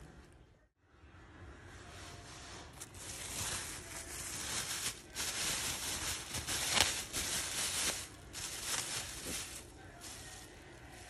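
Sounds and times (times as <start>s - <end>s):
plastic bag rustling and crinkling: 2.6s - 11.0s.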